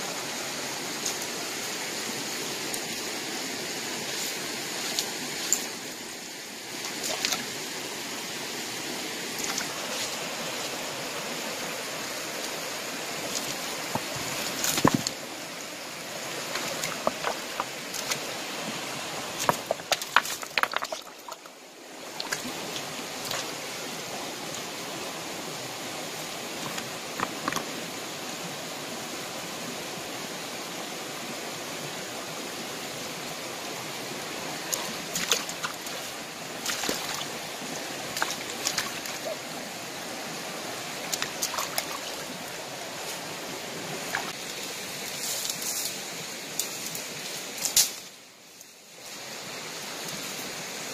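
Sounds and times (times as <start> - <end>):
stream rushing over rocks: 0.0 - 50.9
stones clacking: 13.4 - 15.2, 16.6 - 18.2, 19.4 - 21.5.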